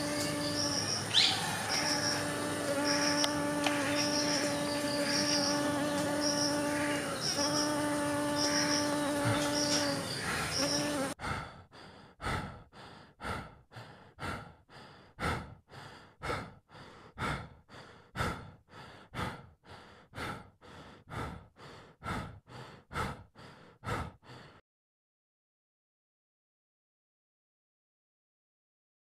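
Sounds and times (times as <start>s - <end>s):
bee buzzing in flight: 0.0s - 11.2s
rhythmic breathy swishes: 11.2s - 24.6s.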